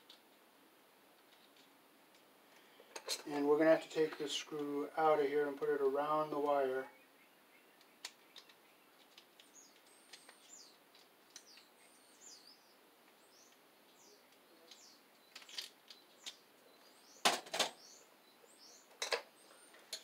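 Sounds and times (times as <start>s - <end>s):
high bird chirps: 6.9s - 19.9s.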